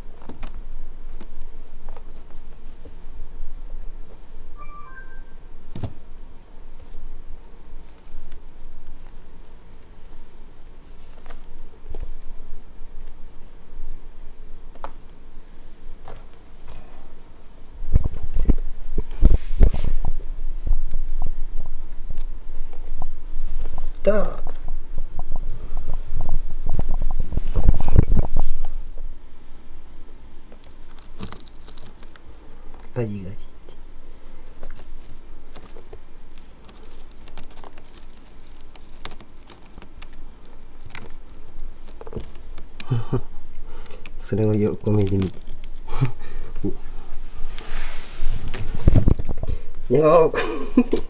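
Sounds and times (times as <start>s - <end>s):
kitten gnawing and clawing straw: 0.0s - 4.5s, 5.7s - 28.8s, 30.4s - 50.0s
kittens scuffling thumps: 34.2s - 42.8s.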